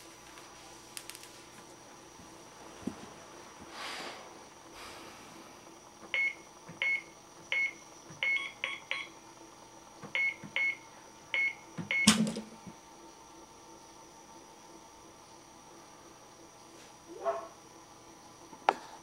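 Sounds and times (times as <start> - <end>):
keypad beeps: 6.2 - 9.1, 10.2 - 10.8, 11.4 - 12.2.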